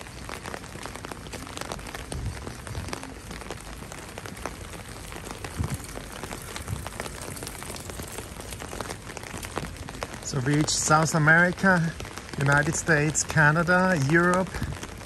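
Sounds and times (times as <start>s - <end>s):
heavy rain on umbrella: 0.0s - 15.0s.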